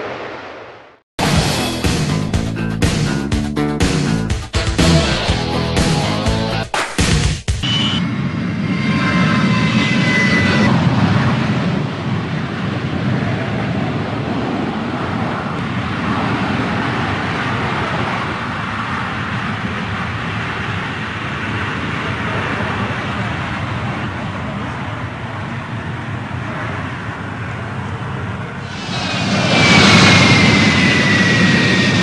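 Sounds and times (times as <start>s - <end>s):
jet engine noise: 0.0s - 1.6s, 7.6s - 32.0s
high whine: 0.0s - 12.0s, 28.5s - 32.0s.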